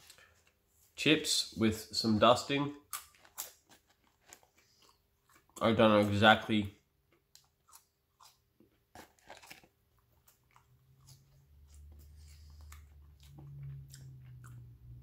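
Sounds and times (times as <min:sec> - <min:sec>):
person chewing crunchy food: 0:02.8 - 0:06.2, 0:06.9 - 0:15.0.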